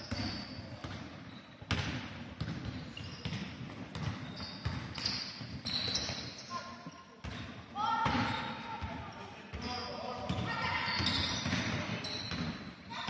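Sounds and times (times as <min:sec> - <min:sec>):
sneaker squeaks: 0:00.0 - 0:13.0
basketball bouncing on wooden floor: 0:00.1 - 0:06.4, 0:10.3 - 0:12.6.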